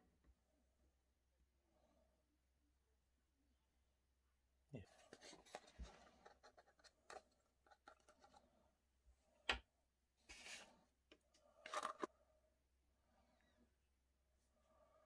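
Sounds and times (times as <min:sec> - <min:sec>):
plastic cups clicking: 0:11.6 - 0:12.1.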